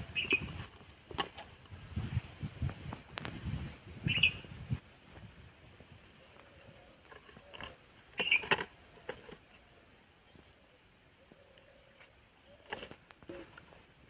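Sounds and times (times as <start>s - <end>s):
dry undergrowth rustling: 0.0s - 10.0s.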